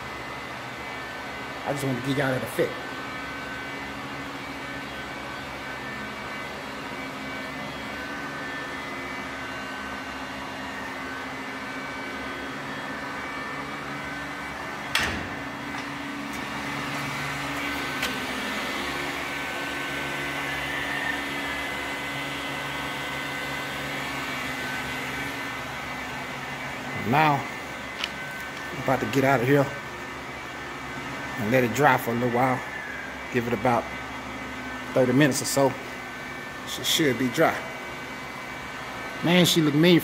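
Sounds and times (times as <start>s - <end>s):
motor humming: 0.0s - 40.0s.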